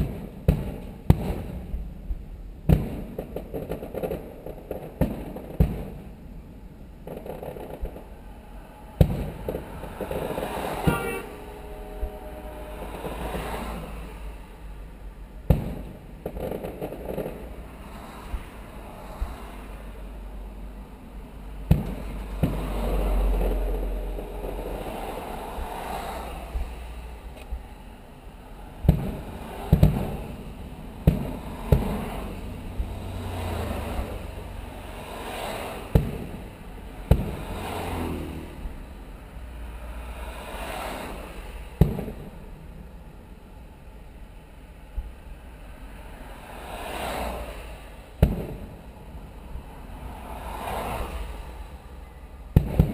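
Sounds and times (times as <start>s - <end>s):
fireworks booming: 0.0s - 19.6s, 20.3s - 43.5s, 46.4s - 51.2s, 52.5s - 52.9s
steady low rumble: 0.0s - 35.0s.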